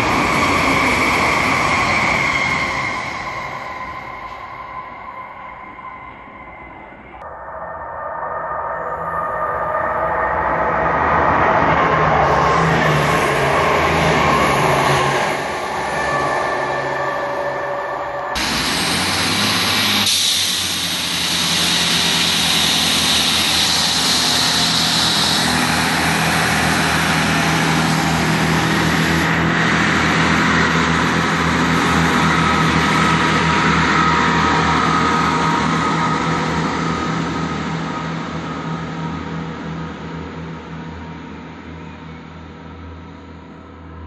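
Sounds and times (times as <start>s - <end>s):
wheel-on-rail noise: 0.0s - 6.5s, 11.2s - 42.2s
train engine drone: 0.0s - 44.0s
train whine: 0.0s - 44.0s
high hiss: 18.4s - 29.3s.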